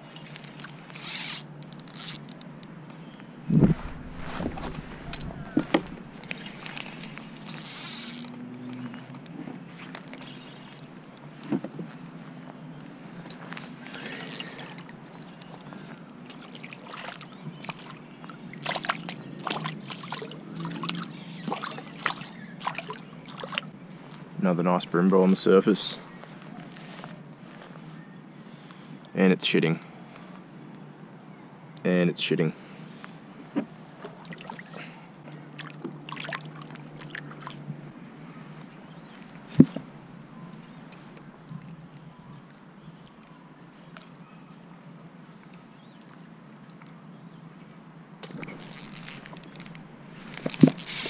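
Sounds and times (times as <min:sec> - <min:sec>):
low steady hum: 0:00.0 - 0:29.1, 0:32.5 - 0:51.0
water splashing and sloshing: 0:03.4 - 0:10.4, 0:14.1 - 0:24.2, 0:33.9 - 0:37.9
water splashes and drips: 0:16.3 - 0:23.8, 0:34.0 - 0:34.8, 0:35.6 - 0:37.6.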